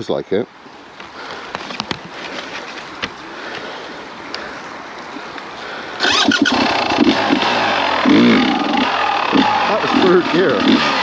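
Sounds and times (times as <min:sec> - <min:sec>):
motorcycle engine revving: 0:06.0 - 0:11.0.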